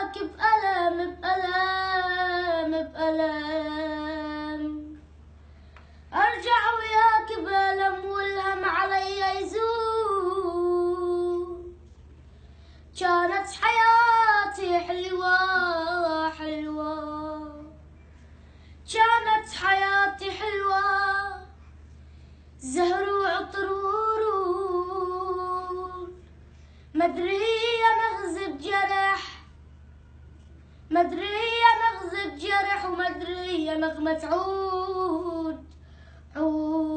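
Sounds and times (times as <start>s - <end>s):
boy singing unaccompanied: 0.0s - 5.0s, 6.1s - 11.8s, 13.0s - 17.8s, 18.9s - 21.6s, 22.6s - 26.2s, 27.0s - 29.4s, 30.9s - 35.7s, 36.4s - 36.9s.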